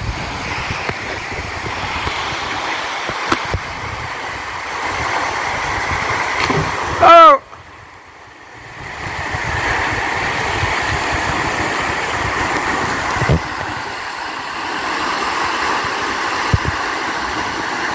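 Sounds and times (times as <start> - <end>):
waterfall rushing: 0.0 - 17.9.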